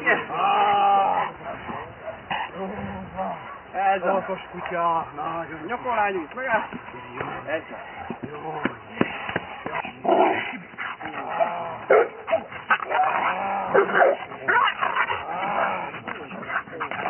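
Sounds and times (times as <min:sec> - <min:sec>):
dog barking aggressively: 0:11.4 - 0:17.0.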